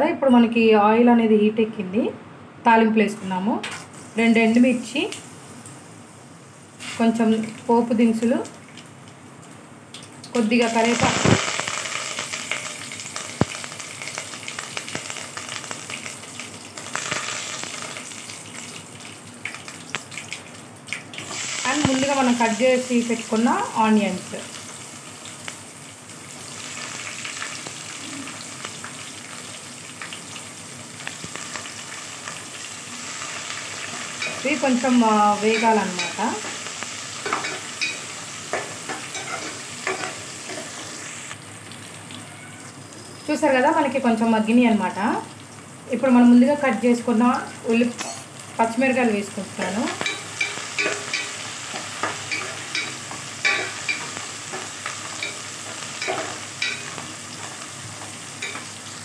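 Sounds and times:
spices sizzling in hot oil: 0:03.7 - 0:59.0
ladle stirring: 0:50.0 - 0:58.8.

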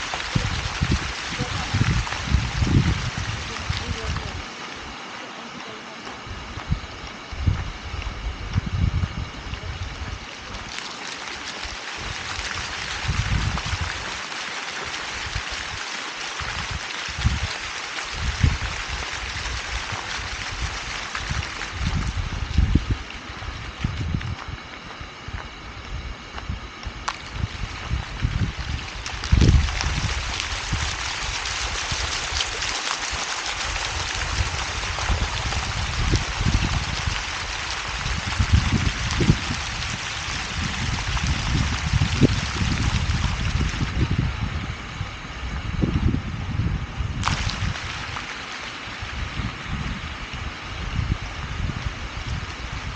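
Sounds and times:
wind buffeting microphone: 0:00.0 - 0:05.1, 0:06.0 - 0:10.7, 0:11.4 - 0:14.2, 0:16.4 - 0:52.9
fountain water splashing: 0:00.0 - 0:25.4, 0:26.8 - 0:45.5, 0:47.2 - 0:52.9
low rumbles: 0:18.2 - 0:32.7.

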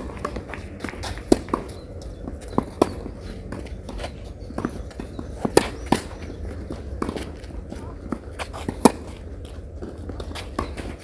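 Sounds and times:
tennis ball off racket strings: 0:00.0 - 0:11.0.

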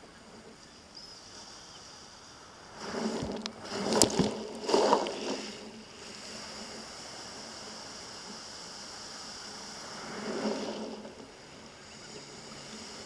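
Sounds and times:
sea hiss: 0:01.0 - 0:13.0
surf washing over cobbles: 0:01.3 - 0:13.0
stones clacking: 0:03.2 - 0:05.5.

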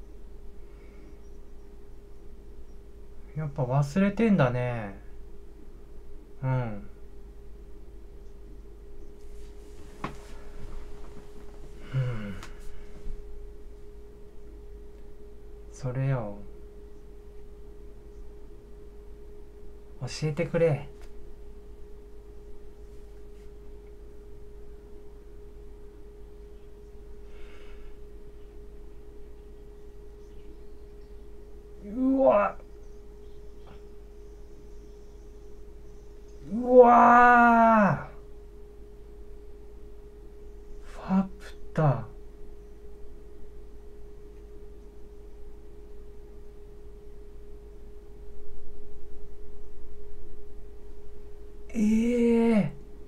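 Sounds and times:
faint background noise: 0:00.0 - 0:53.0
faint low hum: 0:00.0 - 0:53.0
steady pure tone: 0:00.0 - 0:53.0.

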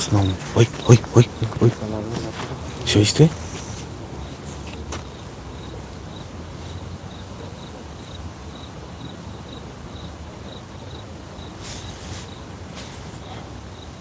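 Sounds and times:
cricket chirping: 0:00.0 - 0:14.0.

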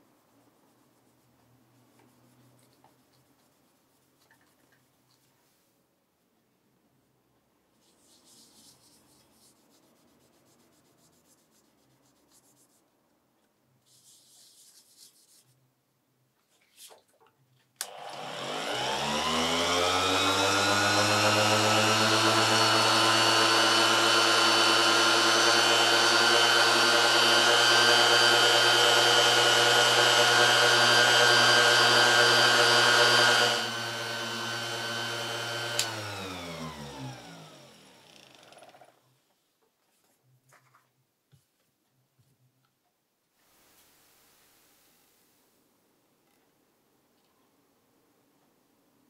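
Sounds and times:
polisher motor whine: 0:17.8 - 0:38.8
polisher switch click: 0:35.7 - 0:36.0.

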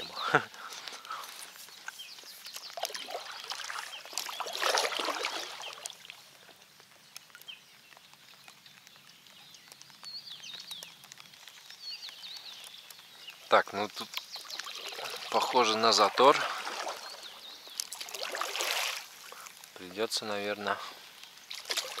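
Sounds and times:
bird chirps: 0:00.0 - 0:06.0, 0:07.1 - 0:18.0
water dripping: 0:00.0 - 0:22.0
paddle splashing in water: 0:02.4 - 0:06.6, 0:14.4 - 0:19.6, 0:21.4 - 0:22.0.

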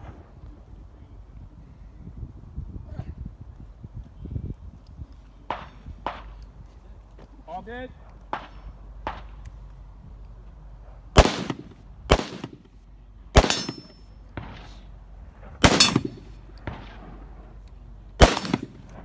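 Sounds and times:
gunshots with echo: 0:11.2 - 0:12.6, 0:13.4 - 0:14.6, 0:15.6 - 0:17.0, 0:18.2 - 0:18.8.

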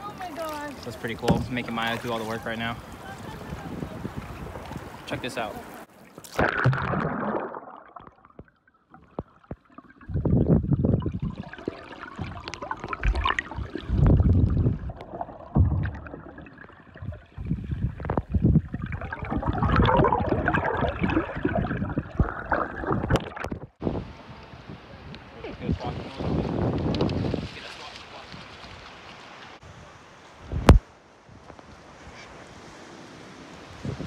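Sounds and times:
underwater sloshing and gurgling: 0:00.1 - 0:23.8.

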